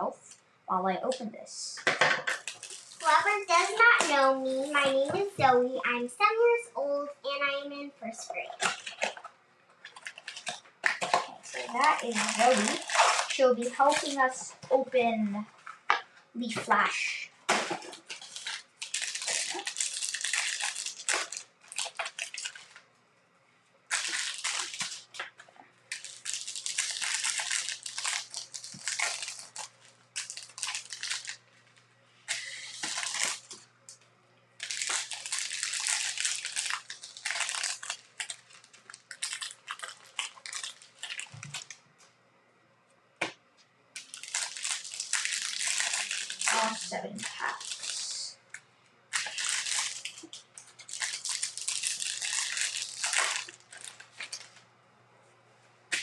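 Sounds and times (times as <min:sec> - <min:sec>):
foil wrappers crinkling: 0:02.3 - 0:05.3, 0:08.3 - 0:14.9, 0:16.6 - 0:22.8, 0:23.9 - 0:33.7, 0:34.6 - 0:41.8, 0:44.0 - 0:54.6.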